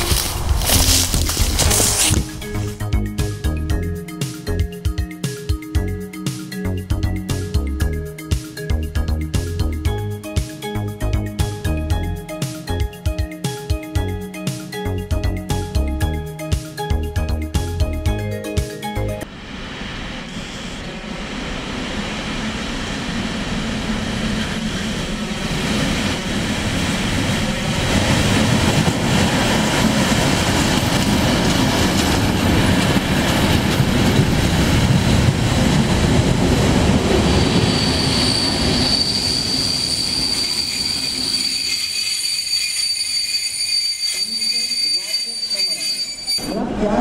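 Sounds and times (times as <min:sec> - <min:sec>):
diesel locomotive rumbling: 0:00.0 - 0:04.8, 0:05.8 - 0:13.0, 0:14.0 - 0:42.2
train brakes squealing: 0:37.1 - 0:46.8.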